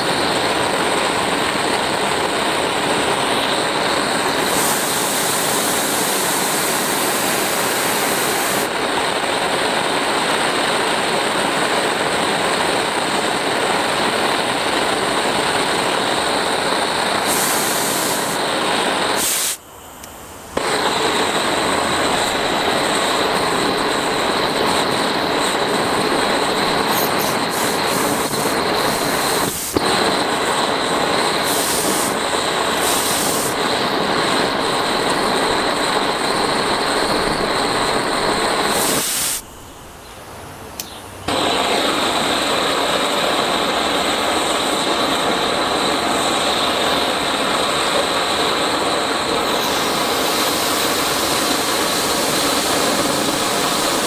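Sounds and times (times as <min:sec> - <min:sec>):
blowtorch flame hissing: 0:00.0 - 0:39.8, 0:41.3 - 0:54.0
sharp click: 0:40.8 - 0:41.0.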